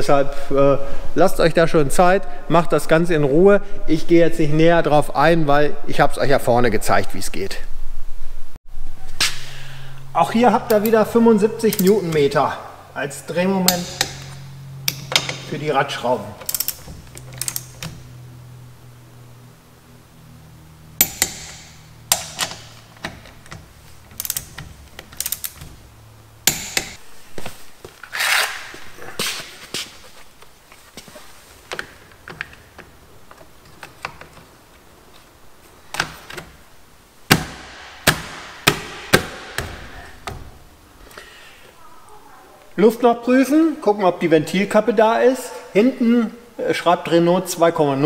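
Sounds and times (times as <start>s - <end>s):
torque wrench clicking: 16.4s - 18.0s, 21.0s - 25.7s, 26.4s - 27.0s.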